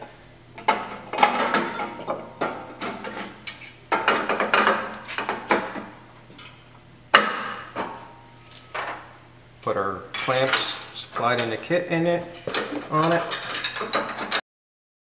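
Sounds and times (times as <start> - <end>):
metal clinking and scraping: 10.1 - 11.6, 12.3 - 14.4.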